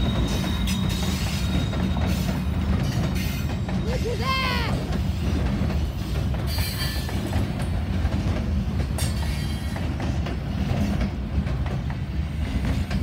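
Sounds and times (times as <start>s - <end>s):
high wheel squeal: 0.0s - 4.5s
train wheels rumbling on rail: 0.0s - 13.0s.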